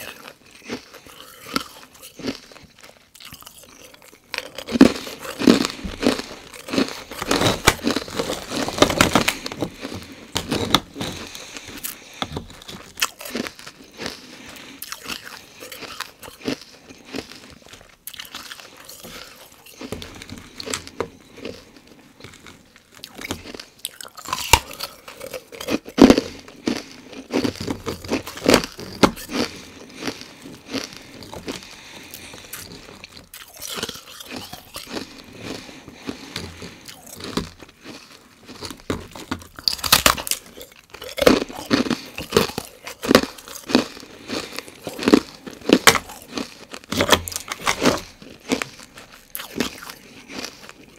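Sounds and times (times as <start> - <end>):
ice crunching while chewed: 0.0 - 50.9.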